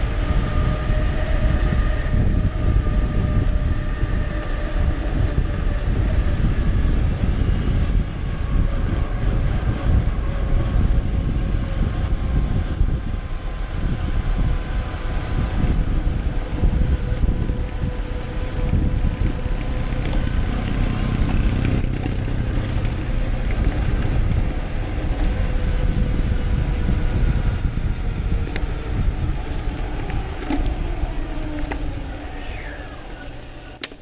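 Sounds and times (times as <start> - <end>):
wind buffeting microphone: 0.0 - 34.0
bicycle tyre hiss on wet road: 10.7 - 33.7.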